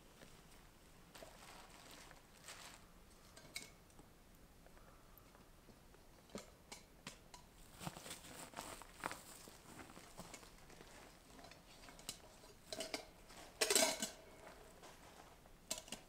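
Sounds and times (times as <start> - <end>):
faint rustling of backpack: 0.1 - 3.4, 7.6 - 12.4.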